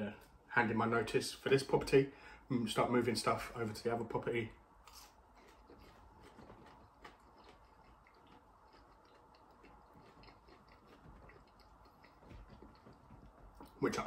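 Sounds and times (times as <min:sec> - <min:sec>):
person chewing food: 0:04.8 - 0:14.0.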